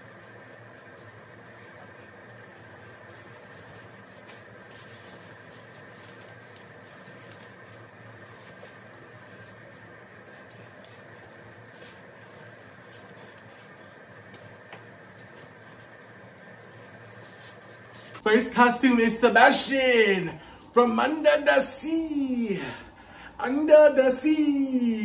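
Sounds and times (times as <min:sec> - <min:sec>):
faint steady hum: 0:00.0 - 0:25.0
plush costume rustling: 0:02.4 - 0:14.2.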